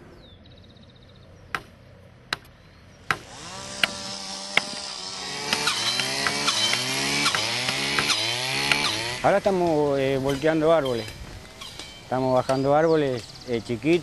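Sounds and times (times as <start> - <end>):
chainsaw revving: 3.1 - 10.4
sharp knocks: 5.4 - 9.0.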